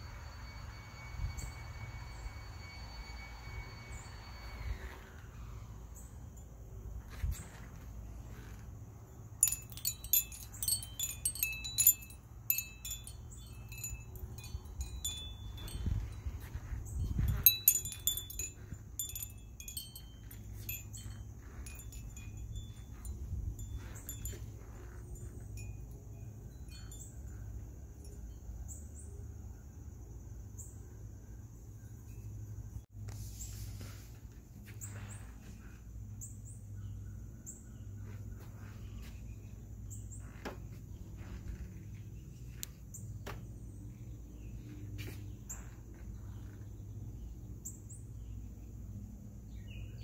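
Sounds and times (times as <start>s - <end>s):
glass wind chimes tinkling: 0.0s - 5.2s, 9.2s - 29.2s.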